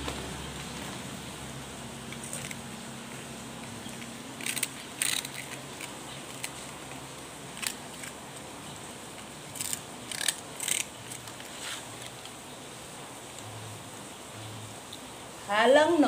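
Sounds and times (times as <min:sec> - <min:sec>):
puppy crunching biscuit: 0:03.6 - 0:08.5.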